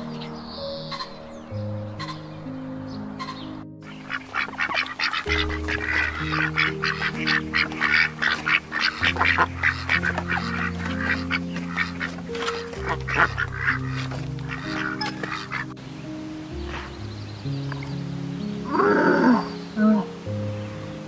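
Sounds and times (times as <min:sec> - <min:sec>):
soft background music: 0:00.0 - 0:21.0
ducks quacking: 0:03.1 - 0:15.8.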